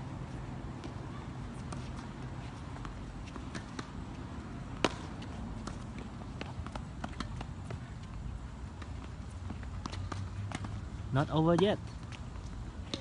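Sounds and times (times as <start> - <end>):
faint taps of play on court: 1.6 - 4.0, 4.8 - 10.8, 11.4 - 13.0
racket striking tennis ball: 4.8 - 5.8.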